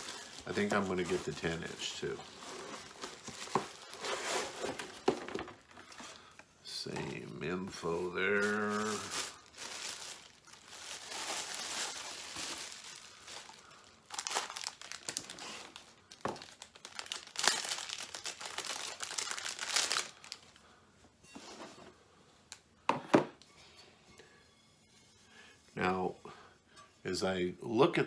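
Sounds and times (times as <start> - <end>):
plastic bag crinkling: 0.0 - 6.2, 7.7 - 20.6.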